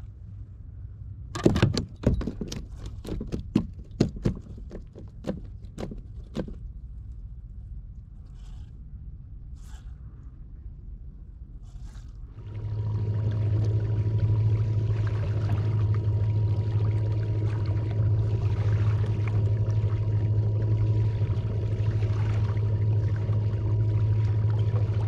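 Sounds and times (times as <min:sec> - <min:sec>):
steady low hum: 0:00.0 - 0:25.0
water splashing against kayak hull: 0:01.4 - 0:07.0, 0:11.8 - 0:25.0.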